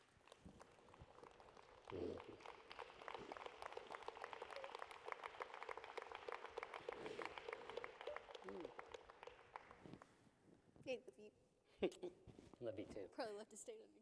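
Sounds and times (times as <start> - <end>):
audience applauding: 0.0 - 9.9.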